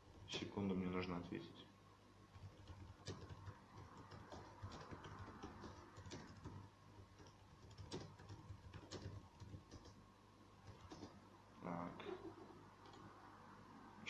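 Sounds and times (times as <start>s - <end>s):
low room hum: 0.0s - 14.0s
typing taps on smartphone: 2.4s - 10.0s.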